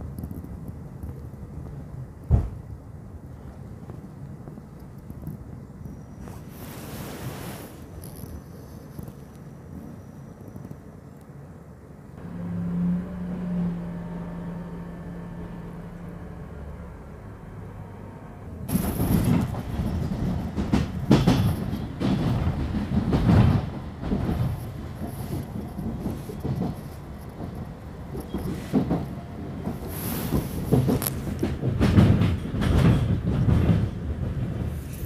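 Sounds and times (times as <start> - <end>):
train wheels clattering on rails: 18.7 - 35.0.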